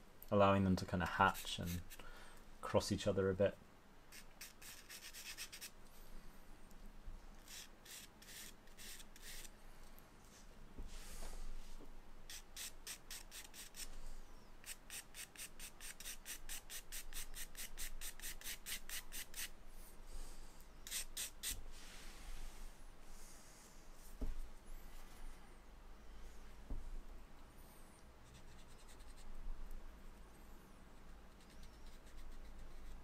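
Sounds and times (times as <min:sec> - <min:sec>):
charcoal scratching on paper: 0:01.3 - 0:02.0, 0:04.1 - 0:05.8, 0:07.4 - 0:09.5, 0:12.3 - 0:14.0, 0:14.6 - 0:19.5, 0:28.2 - 0:29.3, 0:31.0 - 0:33.0.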